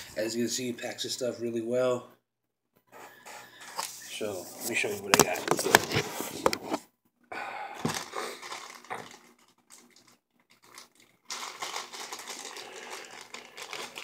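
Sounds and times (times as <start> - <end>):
plastic packaging crinkling: 4.7 - 6.5, 7.8 - 14.0.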